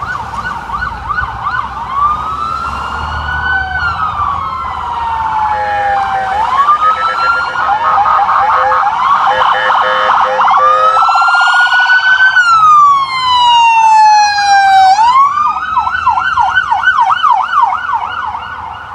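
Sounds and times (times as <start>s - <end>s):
sirens wailing: 0.0s - 18.9s
siren fast yelp: 0.8s - 18.9s
pulsing horn-like tone: 5.5s - 11.1s.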